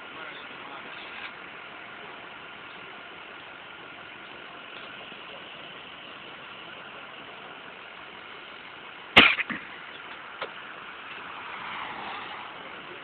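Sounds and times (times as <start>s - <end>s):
vehicle engine noise: 0.0s - 13.0s
sharp bang: 9.2s - 9.7s.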